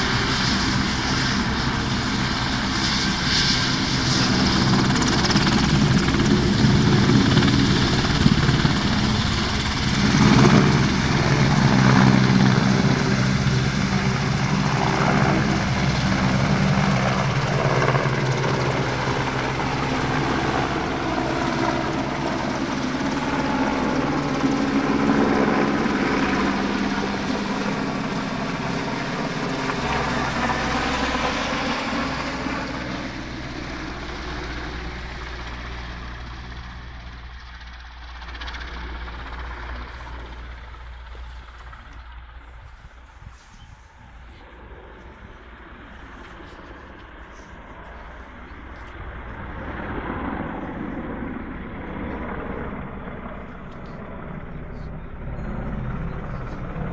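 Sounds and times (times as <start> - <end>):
helicopter taking off: 0.0 - 56.9.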